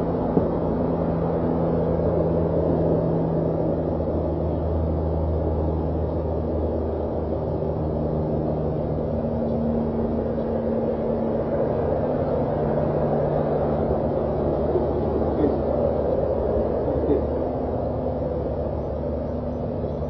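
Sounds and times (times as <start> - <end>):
faint steady tones: 0.0 - 20.0
low mechanical hum: 0.0 - 20.0.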